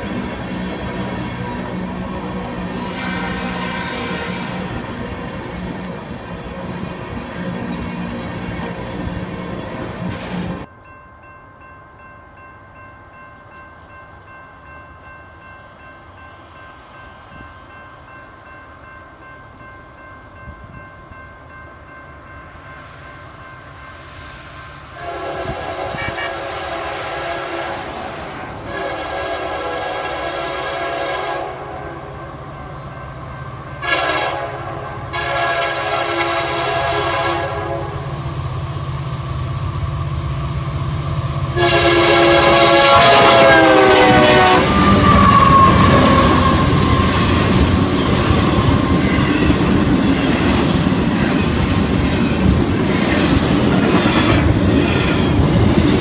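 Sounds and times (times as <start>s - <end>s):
train air horn blasts: 1.4s - 5.0s, 25.0s - 32.1s, 33.8s - 38.2s, 41.5s - 47.3s
diesel locomotive rumble: 25.0s - 56.0s.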